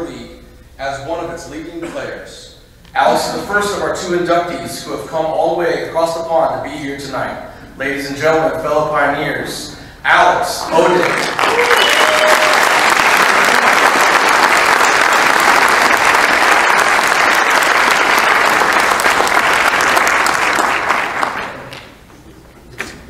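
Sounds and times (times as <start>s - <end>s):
audience applauding: 10.7s - 22.0s.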